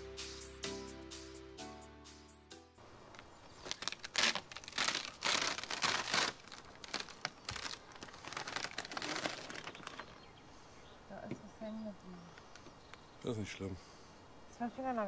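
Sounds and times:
plastic film crinkling as peeled: 0:03.2 - 0:10.2.

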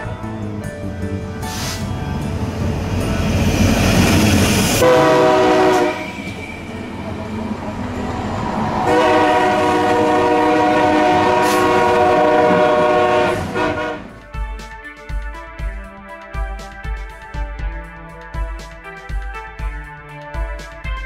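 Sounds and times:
locomotive rumble and wheel noise: 0:00.0 - 0:14.2
multi-note train air horn: 0:04.7 - 0:20.8.

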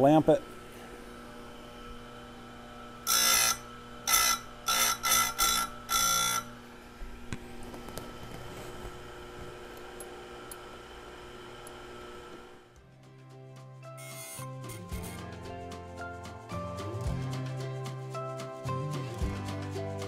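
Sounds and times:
grinder motor running: 0:00.1 - 0:07.8
grinding buzz on saw chain: 0:02.9 - 0:06.6, 0:14.0 - 0:15.2.

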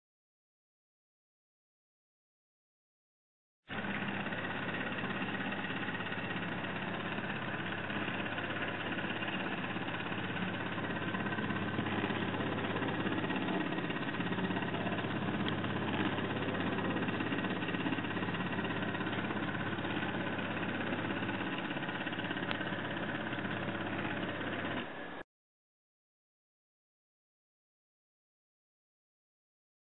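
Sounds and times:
crank mechanism running: 0:03.7 - 0:25.2.

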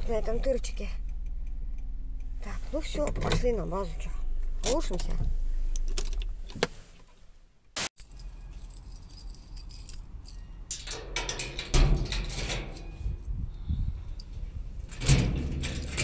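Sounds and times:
keys jangling: 0:08.0 - 0:13.0, 0:14.2 - 0:16.0.

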